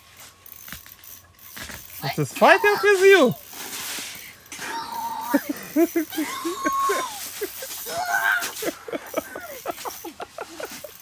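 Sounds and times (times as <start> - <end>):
excited voices crying out: 2.0 - 3.4, 4.5 - 9.8.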